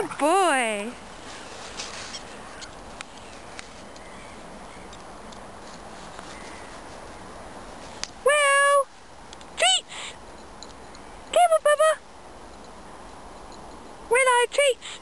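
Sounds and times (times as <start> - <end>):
steady outdoor hiss: 0.0 - 15.0
footsteps crunching in snow: 1.0 - 3.9, 5.6 - 7.1
person high-pitched call: 8.2 - 8.9, 11.3 - 12.0.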